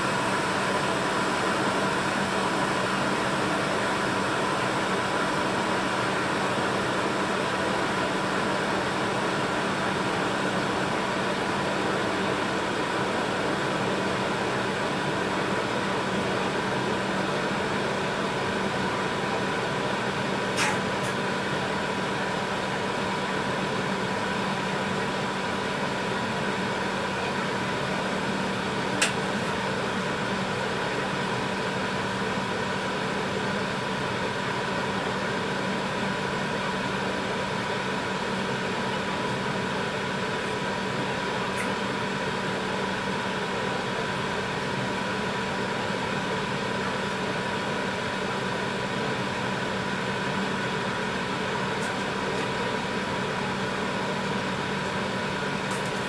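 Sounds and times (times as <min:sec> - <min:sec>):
mechanical hum with hiss: 0:00.0 - 0:56.0.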